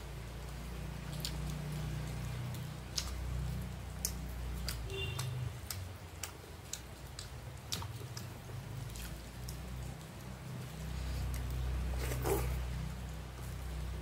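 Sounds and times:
sharp clicks and smacks: 1.2 - 10.3.

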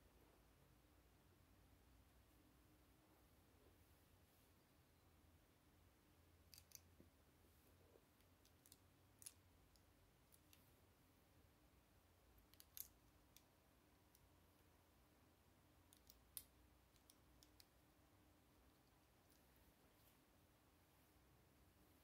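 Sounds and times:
plastic bricks clicking: 12.4 - 13.4.

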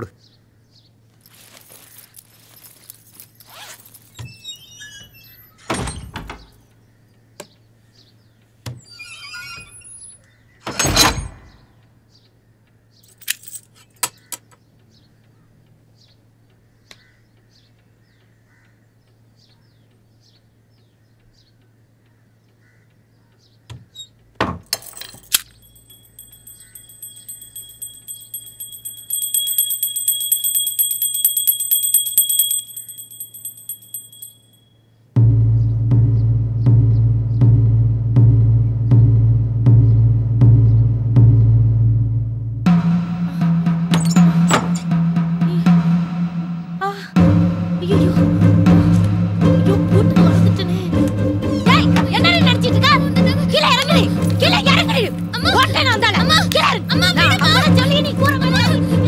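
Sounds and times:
backpack rustling and clicks: 1.2 - 4.2
brass hand bell ringing: 25.3 - 34.8
heavy thumps: 35.2 - 59.0.

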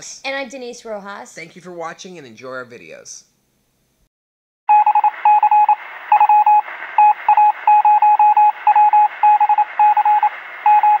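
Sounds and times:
short electronic beeps: 4.7 - 11.0
radio static hiss: 5.0 - 11.0.

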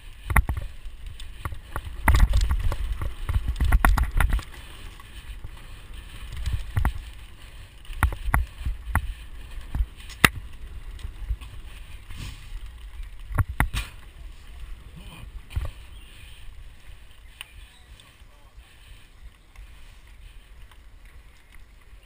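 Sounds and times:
bike knocks and rattles: 0.0 - 14.2.

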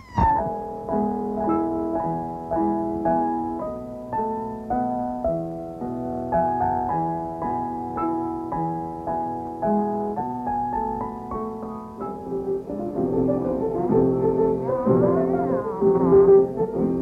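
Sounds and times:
held notes with wavering pitch: 0.0 - 0.8
piano melody: 0.0 - 17.0.

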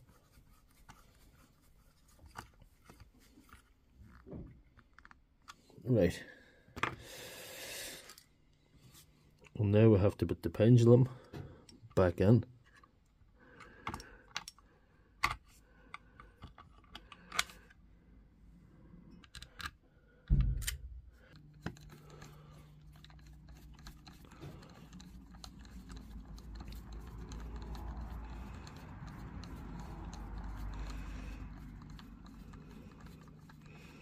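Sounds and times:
small parts clicking and tapping: 13.6 - 17.8, 19.1 - 34.0.

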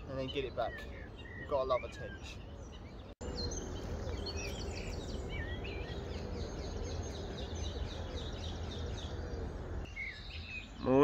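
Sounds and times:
small birds chirping and singing: 0.0 - 11.0.

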